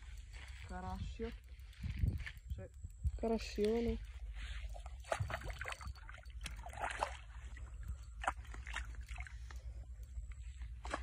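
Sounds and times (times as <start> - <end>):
fish thrashing and splashing: 4.6 - 9.8, 10.6 - 11.0.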